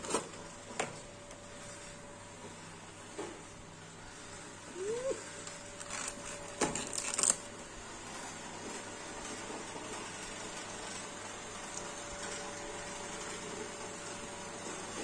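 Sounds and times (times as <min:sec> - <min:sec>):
plastic packaging crinkling: 0:05.7 - 0:07.5.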